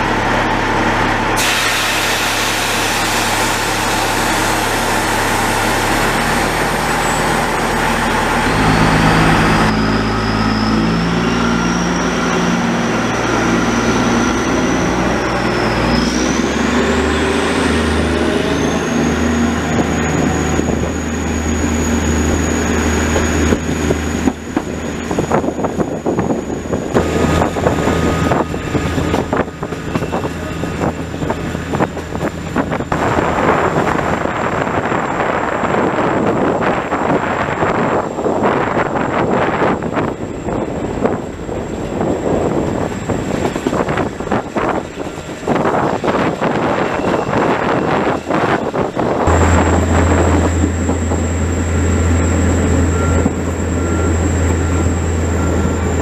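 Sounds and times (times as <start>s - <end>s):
diesel locomotive engine: 0.0s - 56.0s
train rattling over track: 0.0s - 56.0s
loud hiss: 1.4s - 5.9s.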